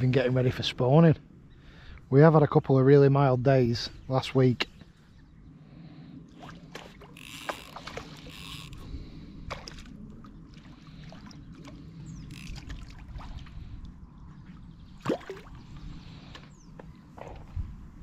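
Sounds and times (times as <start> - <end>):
wind buffeting microphone: 8.4 - 18.0.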